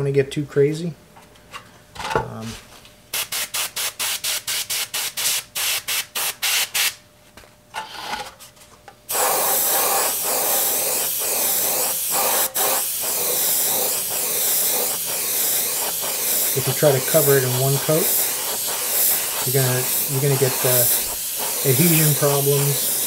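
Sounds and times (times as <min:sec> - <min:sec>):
airbrush spraying paint: 0:03.1 - 0:07.0, 0:09.1 - 0:23.0.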